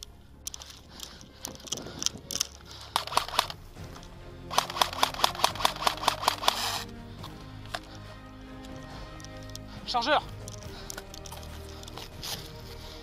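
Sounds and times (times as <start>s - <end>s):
airsoft rifle firing: 3.0s - 3.6s, 4.5s - 6.8s.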